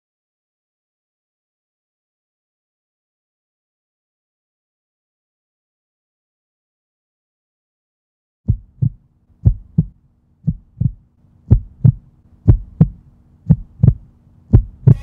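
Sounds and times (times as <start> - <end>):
faint low hum: 8.5 - 15.0
heartbeat-like double thumps: 8.5 - 15.0.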